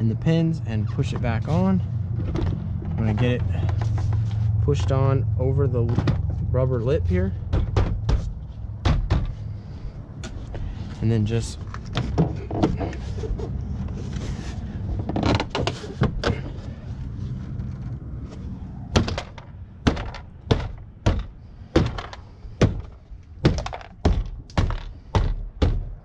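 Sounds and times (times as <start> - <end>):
sharp thunks of plastic panel: 7.5 - 9.4, 18.9 - 26.0.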